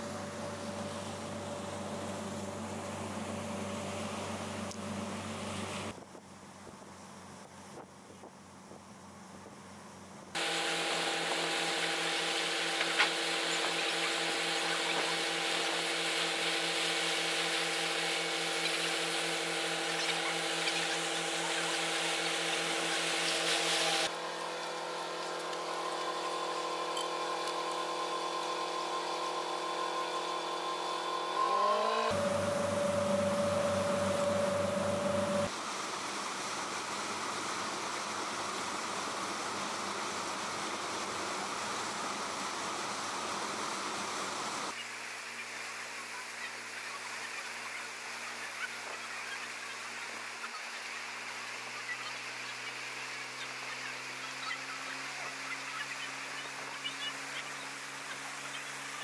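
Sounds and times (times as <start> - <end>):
boat engine droning: 0.0 - 5.9, 10.4 - 35.5
rushing water from wake: 10.4 - 26.9, 32.1 - 59.0.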